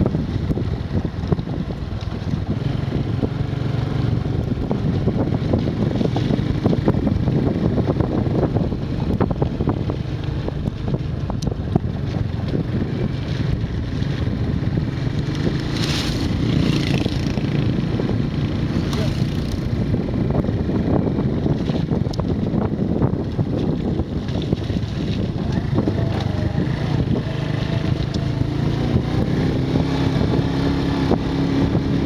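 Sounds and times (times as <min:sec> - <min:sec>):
motorbike engine running: 0:00.0 - 0:32.0
wind rushing over microphone: 0:00.0 - 0:32.0.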